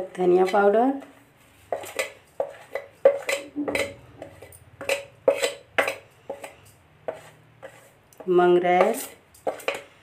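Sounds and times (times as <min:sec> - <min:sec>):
metal spoon scraping a steel plate: 0:01.7 - 0:08.0, 0:08.7 - 0:10.0.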